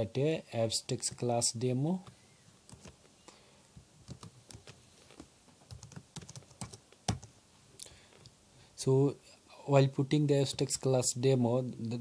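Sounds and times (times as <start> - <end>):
computer keyboard typing: 2.7 - 3.0, 4.1 - 4.8, 5.7 - 7.3.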